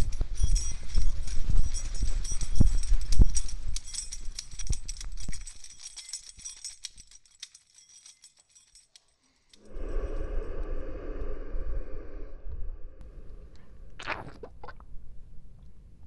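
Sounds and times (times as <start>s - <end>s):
heavy low thumps: 9.7s - 14.2s.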